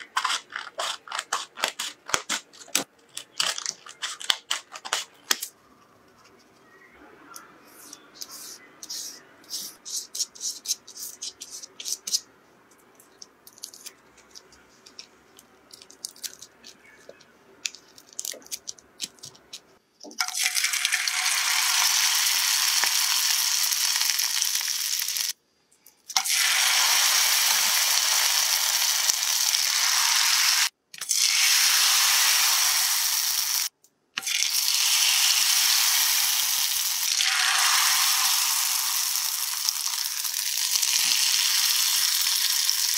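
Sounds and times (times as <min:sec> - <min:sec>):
soft brush strokes: 0:05.9 - 0:11.7
food sizzling in hot oil: 0:20.2 - 0:25.4, 0:26.2 - 0:42.9.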